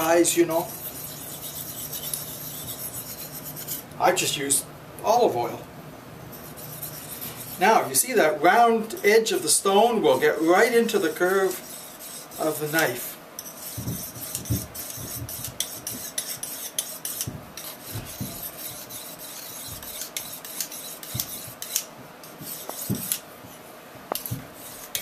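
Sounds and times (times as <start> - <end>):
blade rubbing on sharpening stone: 0.5 - 3.8, 6.3 - 7.6, 10.1 - 23.2, 24.2 - 25.0.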